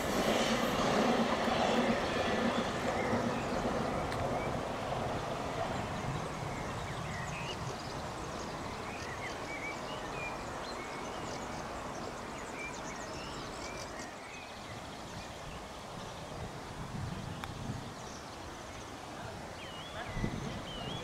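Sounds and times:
electric train rumble: 0.0 - 14.0.

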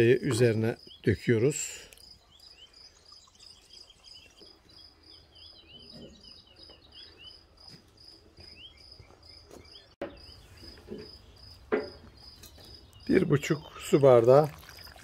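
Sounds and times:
cricket chirping: 1.8 - 13.2, 14.5 - 15.0.

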